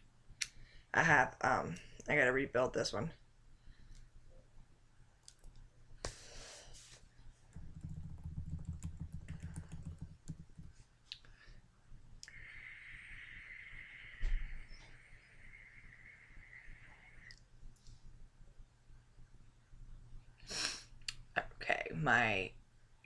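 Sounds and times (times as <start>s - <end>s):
vape draw hiss: 12.2s - 17.4s.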